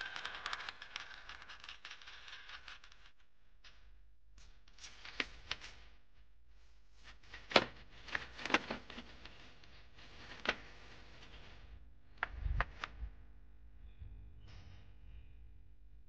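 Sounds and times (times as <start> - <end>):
plastic toy truck clicks and knocks: 0.0 - 3.0.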